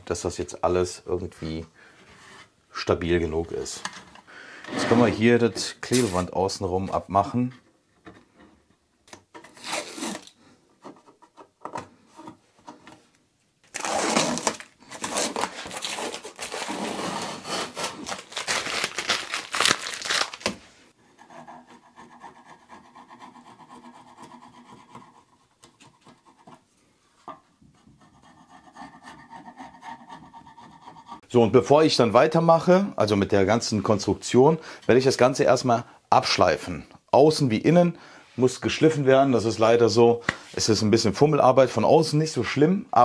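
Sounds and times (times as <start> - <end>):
adhesive tape ripping: 9.5 - 10.4, 13.7 - 20.6.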